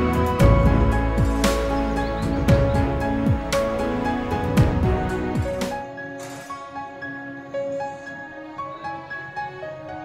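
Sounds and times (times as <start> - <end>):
electronic music with deep drums: 0.0 - 5.8.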